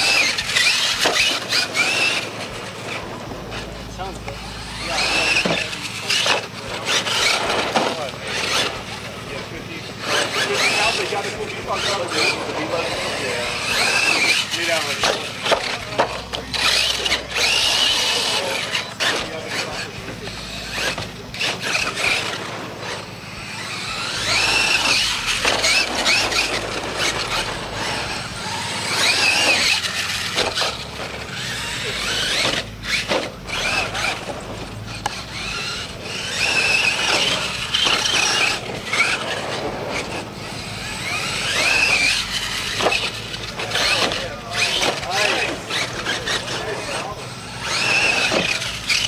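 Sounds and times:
electric motor whining: 0.0s - 49.0s
toy truck landing knocks: 0.9s - 2.1s.

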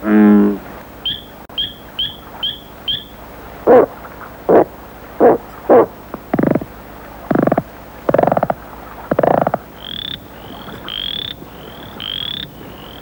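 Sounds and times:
low hoots: 0.0s - 6.7s, 7.3s - 9.6s
toad croaking: 4.5s - 6.7s, 7.3s - 13.0s.

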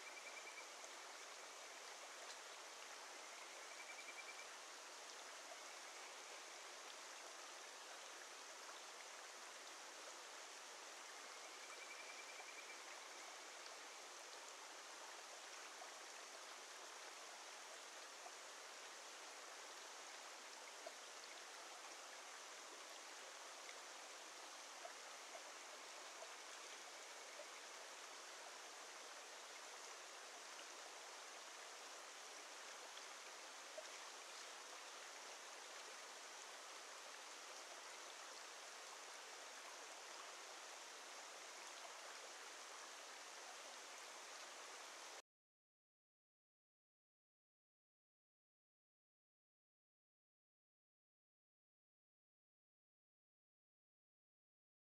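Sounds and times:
mountain stream rushing: 0.0s - 11.7s, 12.5s - 45.2s
frogs whistled calls: 3.4s - 4.4s, 11.7s - 12.8s.

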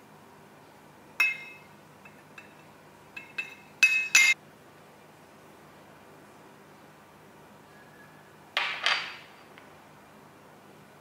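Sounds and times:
spoon clinking on glass jug: 1.2s - 4.4s.

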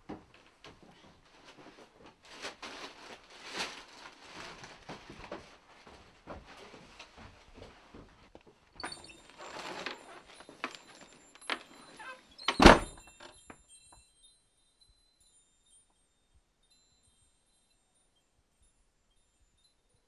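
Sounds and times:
metal wind chime ringing: 8.8s - 20.0s
door thud: 12.5s - 13.0s.

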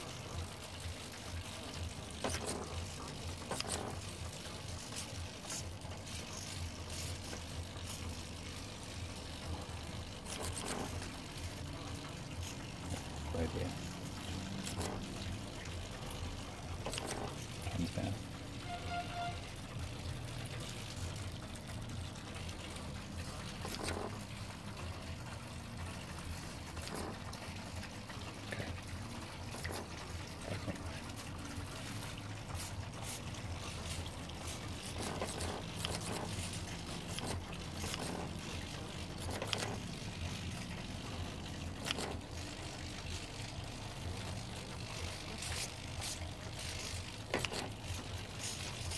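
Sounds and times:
servos whirring and clicking: 1.8s - 18.3s, 32.5s - 48.9s.

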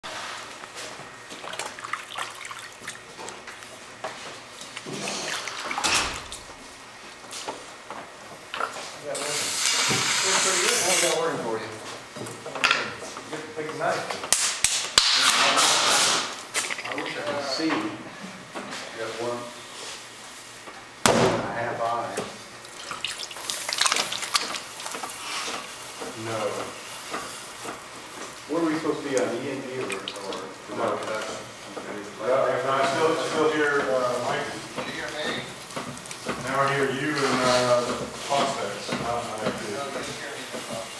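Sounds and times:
wet hands sloshing in water bucket: 1.3s - 3.7s, 4.5s - 6.4s, 16.5s - 17.3s, 22.6s - 25.4s, 29.8s - 31.3s
water drips and splashes: 1.4s - 3.6s, 4.6s - 6.4s, 16.6s - 17.2s, 22.6s - 25.2s, 29.7s - 31.2s.

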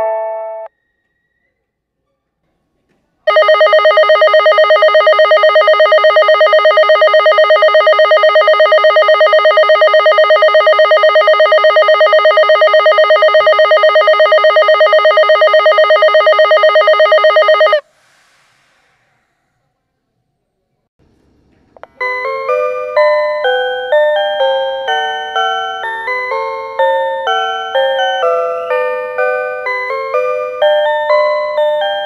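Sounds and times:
bell-like ringing with rapid trill: 3.3s - 17.8s.

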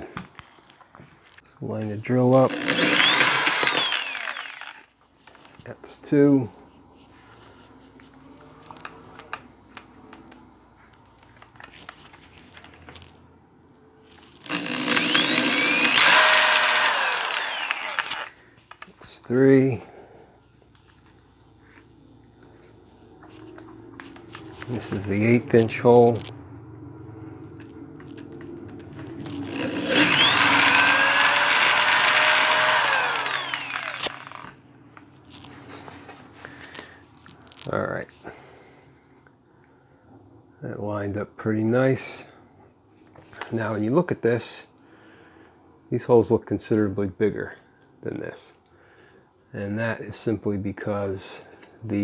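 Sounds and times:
drill chuck clicks: 2.5s - 4.9s, 14.4s - 18.9s, 29.5s - 34.5s
electric drill whining through plastic: 2.5s - 4.9s, 14.3s - 18.4s, 29.2s - 34.6s.

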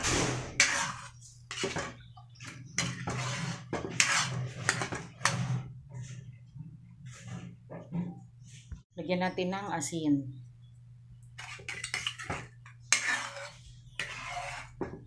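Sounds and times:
metal ladle scraping a wok: 0.0s - 6.3s, 11.4s - 15.0s
low steady hum: 5.7s - 14.6s.

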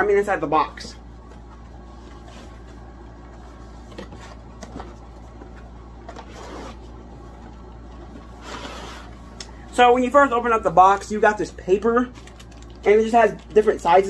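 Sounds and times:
steady low hum: 0.0s - 14.0s
cardboard box scraping: 8.4s - 9.1s.

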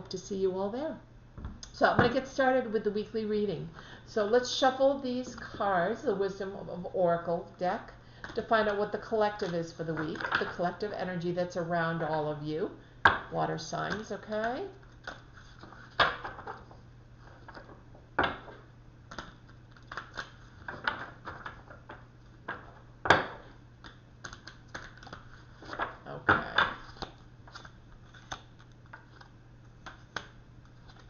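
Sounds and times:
cards being shuffled: 18.5s - 22.8s, 23.4s - 31.0s.

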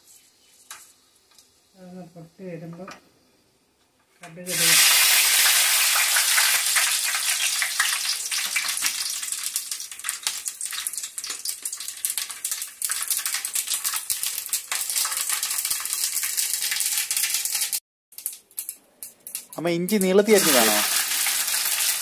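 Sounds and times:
seeds spluttering in hot oil: 4.4s - 22.0s.

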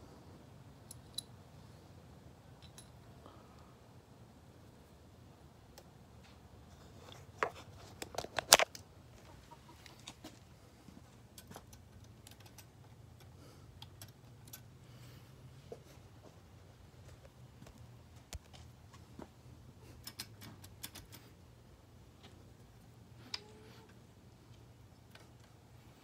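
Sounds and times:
faint low hum: 0.0s - 26.0s
sharp clicks and knocks: 20.0s - 21.4s.

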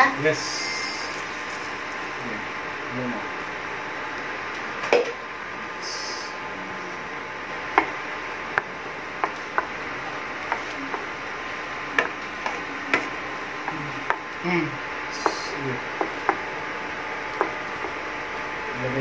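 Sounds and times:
steady hiss: 0.0s - 4.5s, 5.5s - 18.2s.

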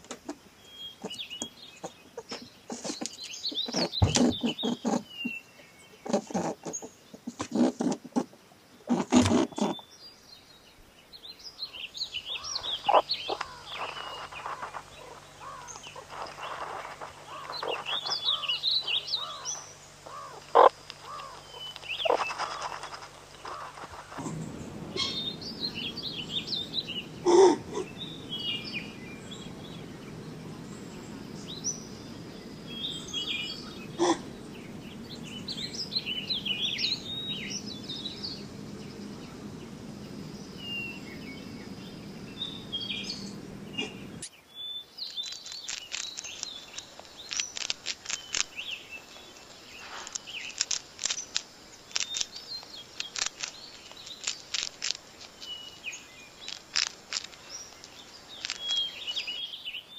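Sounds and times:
small birds chirping: 0.0s - 59.9s
guinea pig munching lettuce: 45.2s - 48.6s, 49.7s - 58.9s.

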